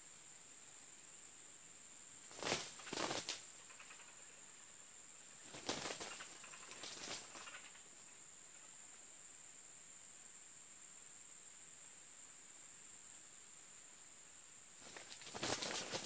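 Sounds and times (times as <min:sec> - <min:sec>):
roosters wing flapping: 0:02.3 - 0:04.1, 0:05.4 - 0:07.8, 0:14.8 - 0:16.0.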